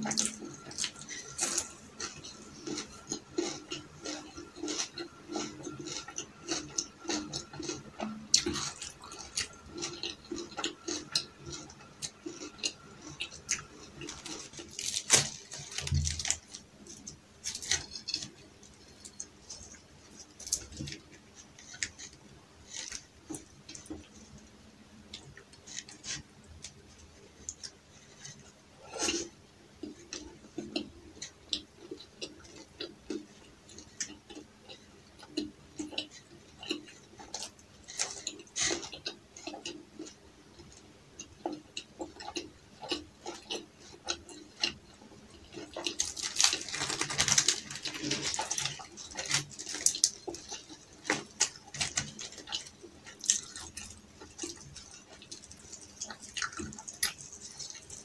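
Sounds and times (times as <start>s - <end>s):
flatbread tearing: 45.9s - 53.6s
wet chewing and lip smacks: 47.9s - 58.0s.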